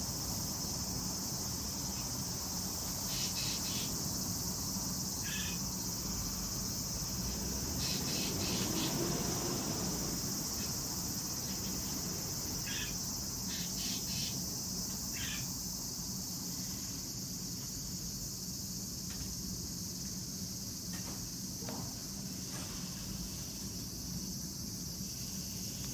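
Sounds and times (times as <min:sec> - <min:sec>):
insect chorus: 0:00.0 - 0:25.9
short insect chirps: 0:07.8 - 0:19.6.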